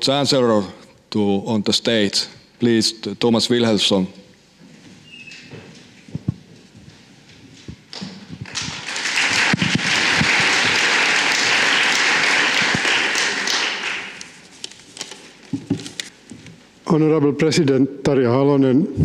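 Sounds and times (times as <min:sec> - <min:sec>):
audience applauding: 0:08.4 - 0:14.4.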